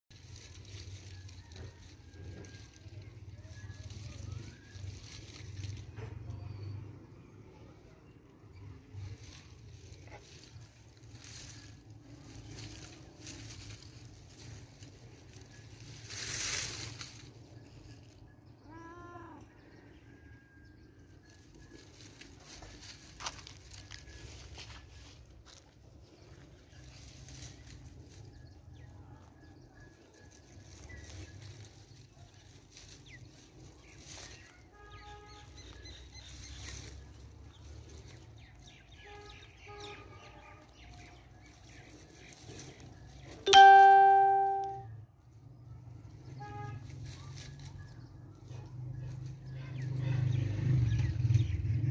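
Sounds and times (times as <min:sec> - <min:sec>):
small birds chirping: 0:02.4 - 0:43.5
cat meowing: 0:18.7 - 0:19.5.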